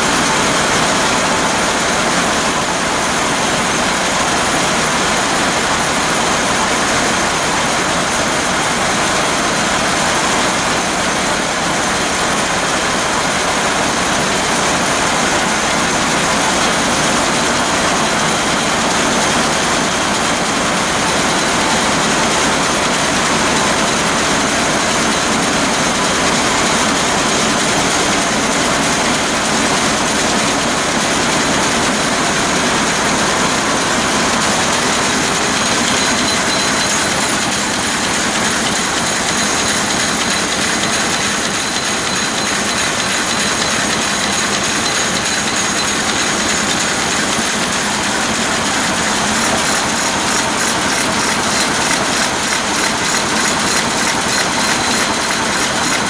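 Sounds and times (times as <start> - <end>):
marine diesel engine running: 15.8 - 56.0.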